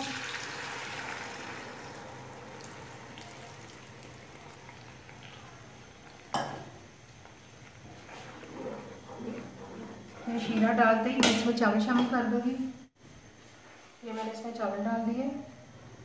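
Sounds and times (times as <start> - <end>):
syrup sizzling in hot oil: 0.0 - 6.4.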